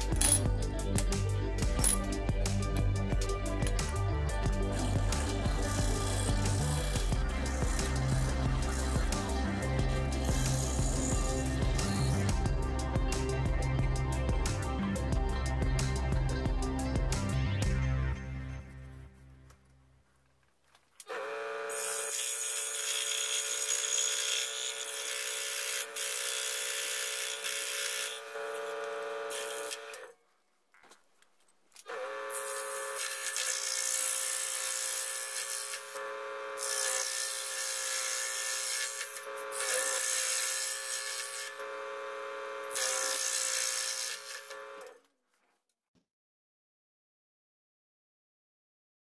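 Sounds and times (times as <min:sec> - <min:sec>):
scroll saw cutting wood: 0:03.4 - 0:12.6, 0:21.0 - 0:30.2, 0:31.8 - 0:45.1.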